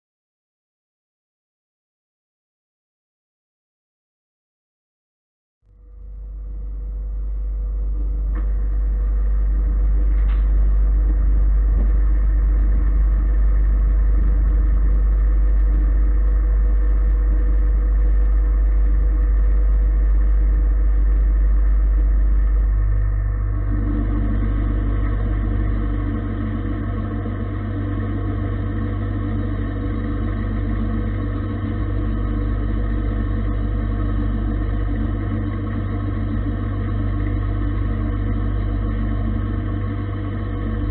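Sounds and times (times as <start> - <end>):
lathe humming with faint whine: 5.7 - 40.9.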